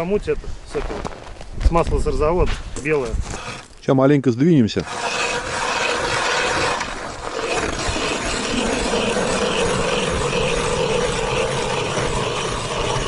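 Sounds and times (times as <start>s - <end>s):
hand ice auger grinding ice: 3.0s - 3.8s, 4.8s - 13.0s.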